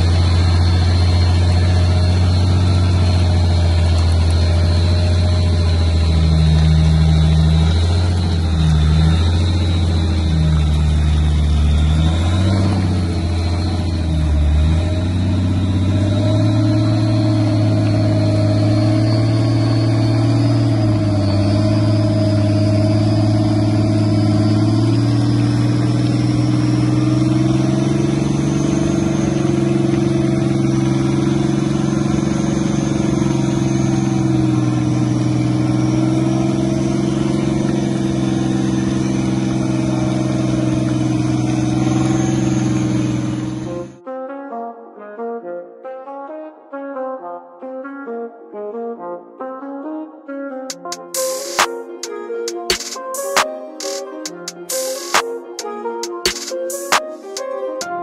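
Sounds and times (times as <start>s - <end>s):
engine running under load: 0.0s - 44.0s.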